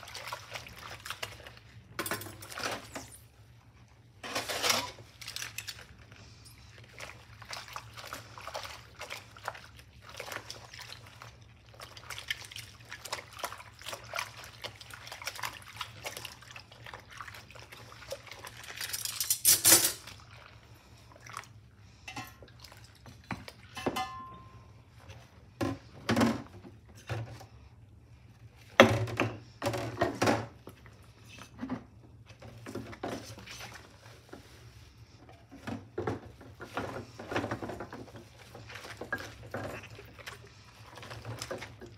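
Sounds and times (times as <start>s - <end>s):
water sloshing and dripping: 0.0s - 41.9s
utensils and glass clinking: 18.8s - 20.1s, 23.7s - 24.5s.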